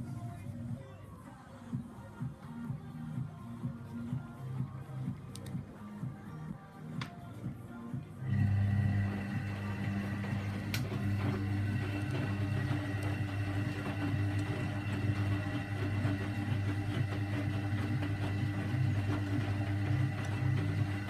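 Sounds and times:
washing machine humming: 0:08.1 - 0:21.0.

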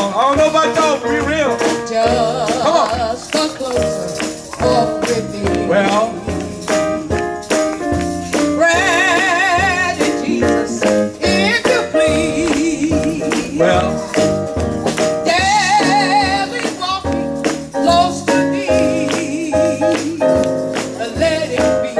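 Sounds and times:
drum beat: 0:00.0 - 0:21.9
tambourine shaking: 0:00.0 - 0:21.9
woman singing with vibrato: 0:08.6 - 0:14.4.

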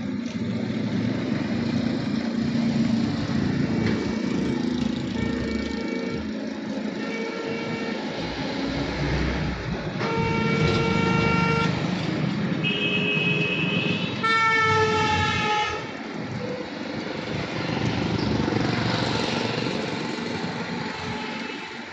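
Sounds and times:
traffic rumble: 0:00.0 - 0:21.9
vehicle horns blowing: 0:04.0 - 0:06.3, 0:07.0 - 0:08.1, 0:10.0 - 0:11.8, 0:12.6 - 0:16.7.

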